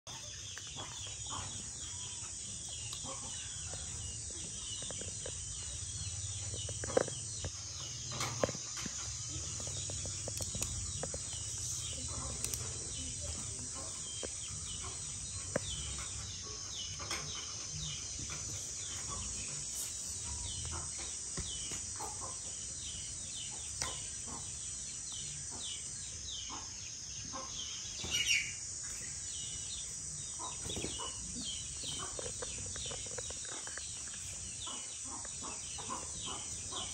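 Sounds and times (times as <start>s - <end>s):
birds chirping: 0.1s - 36.9s.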